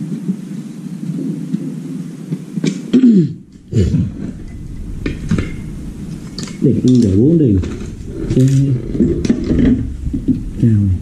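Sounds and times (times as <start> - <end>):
person coughing: 2.9 - 4.0.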